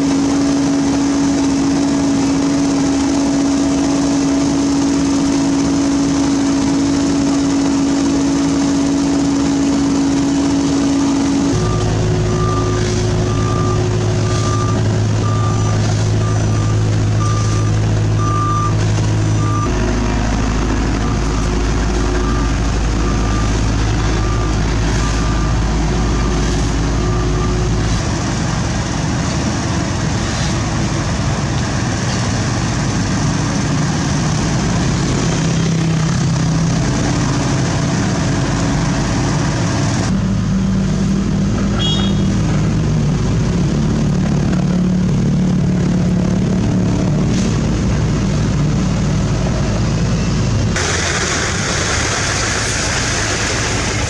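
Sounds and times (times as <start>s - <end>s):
diesel engine running: 0.0s - 54.0s
reversing alarm beeping: 10.1s - 28.2s.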